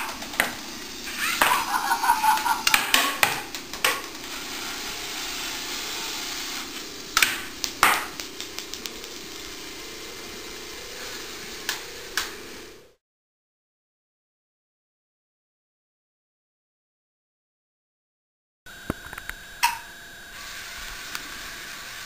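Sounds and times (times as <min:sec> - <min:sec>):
toy motors whirring: 0:00.0 - 0:12.3.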